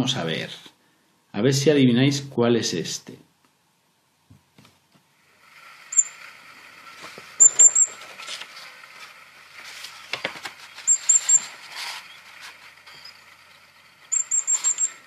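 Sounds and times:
recorded bird song high notes: 5.9s - 6.2s, 7.4s - 7.9s, 10.8s - 11.5s, 14.1s - 15.0s.

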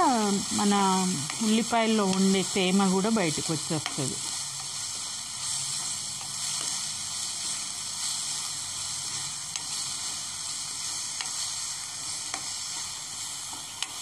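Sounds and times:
onions sizzling in oil: 0.0s - 14.0s
spatula clicking against pan: 1.2s - 2.4s, 3.8s - 4.0s, 9.5s - 9.8s, 11.1s - 11.4s, 12.2s - 12.9s.

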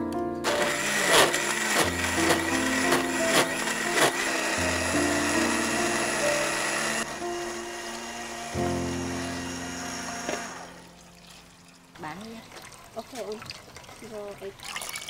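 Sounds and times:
blender running: 0.4s - 10.9s.

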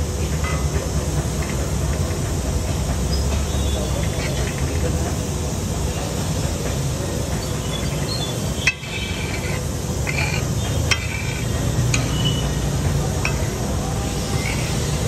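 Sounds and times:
spatula scraping on iron griddle: 7.4s - 15.0s.

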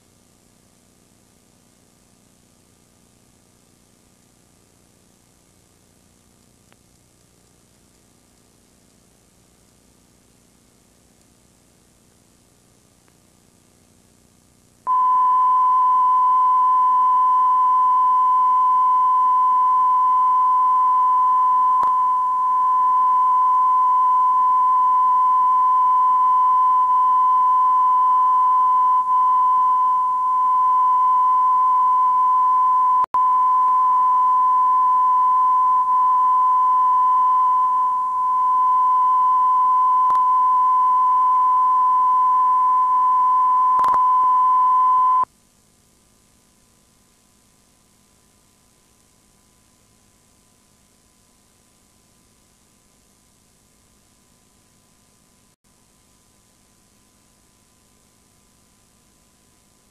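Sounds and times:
faint tape hiss: 0.0s - 45.3s
steady test tone: 14.9s - 45.2s.

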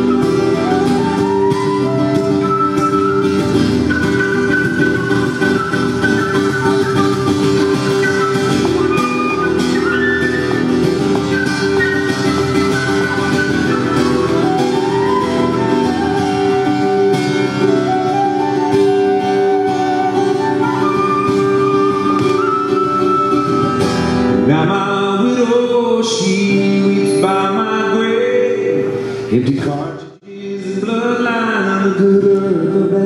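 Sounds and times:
flute melody: 0.0s - 24.6s
strummed acoustic guitar: 0.0s - 29.4s
man singing: 24.4s - 33.0s.

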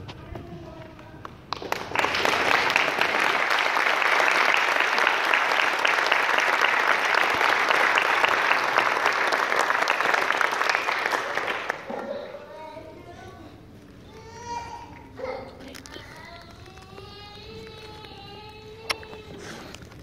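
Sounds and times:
audience applauding: 1.5s - 12.2s.

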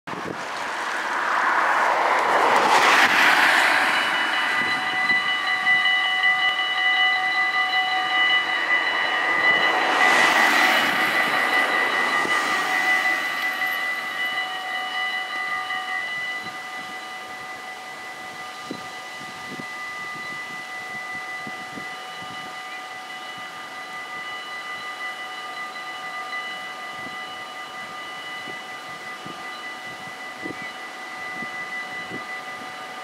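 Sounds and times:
cars passing close by: 0.1s - 16.9s
level-crossing warning bells ringing: 2.3s - 33.0s.

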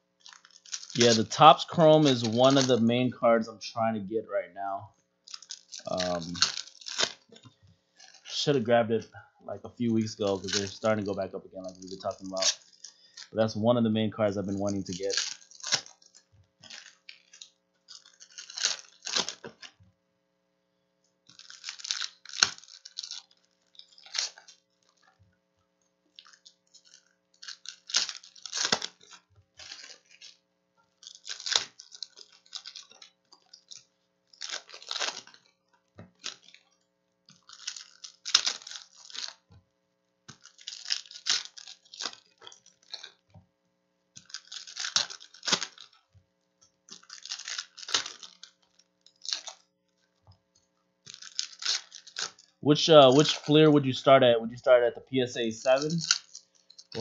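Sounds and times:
foil wrappers tearing and crinkling: 0.2s - 3.5s, 5.2s - 8.8s, 9.8s - 13.5s, 14.2s - 19.8s, 21.2s - 25.2s, 26.1s - 39.6s, 40.2s - 43.3s, 44.2s - 54.2s, 55.3s - 57.0s.

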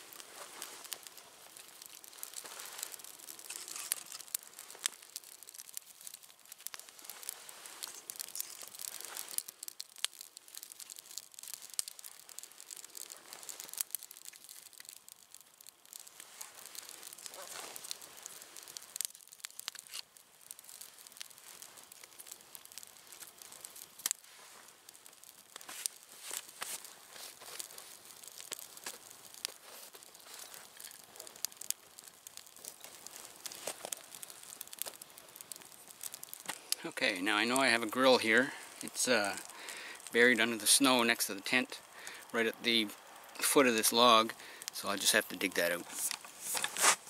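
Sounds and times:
rustling: 0.0s - 14.8s, 15.9s - 20.0s, 20.7s - 36.9s, 45.7s - 47.0s
campfire crackling and popping: 0.0s - 47.0s.

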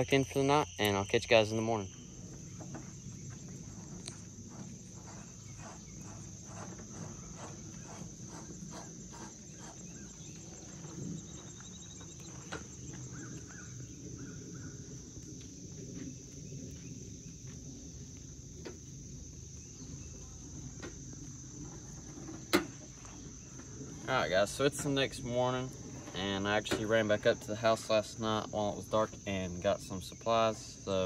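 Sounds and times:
insects chorus: 0.0s - 31.0s
footsteps on dirt: 2.2s - 13.7s, 15.0s - 19.0s.

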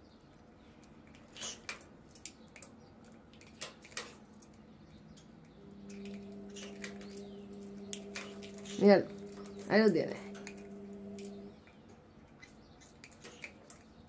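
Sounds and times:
steady low hum: 5.4s - 11.7s.

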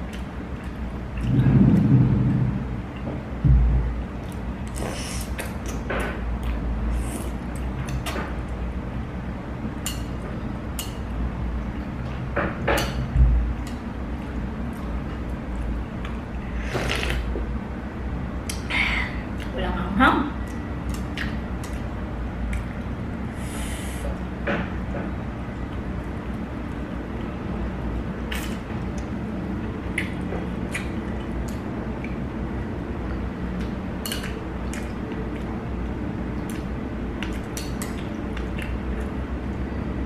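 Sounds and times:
low background rumble: 0.0s - 40.0s
steady low hum: 0.0s - 40.0s
low thump: 3.4s - 3.9s
noodle slurping: 16.7s - 17.3s
person chewing: 36.4s - 39.1s.

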